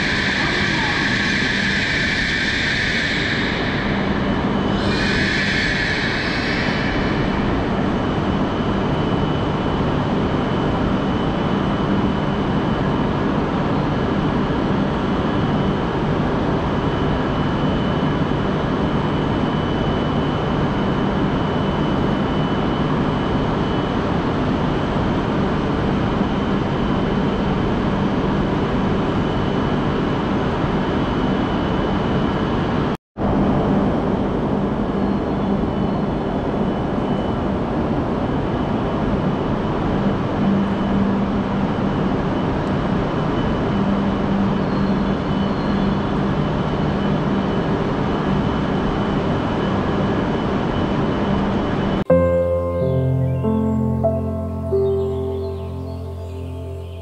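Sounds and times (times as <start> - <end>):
train rumble with hum: 0.0 - 17.3
high-pitched whine: 0.0 - 57.0.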